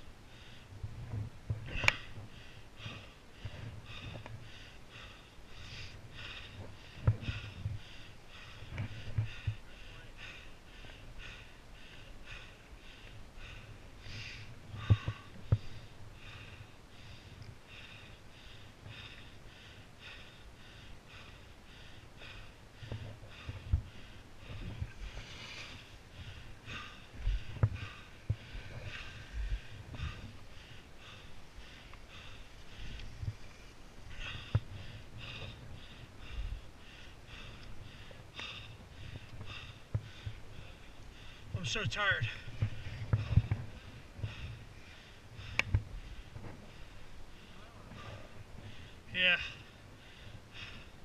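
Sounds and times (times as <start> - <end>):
heavy rhythmic breathing: 0.0 - 51.0.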